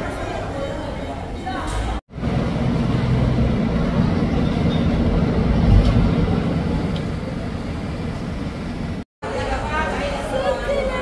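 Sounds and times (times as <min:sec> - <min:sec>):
moving vehicle rumble: 0:02.1 - 0:09.0.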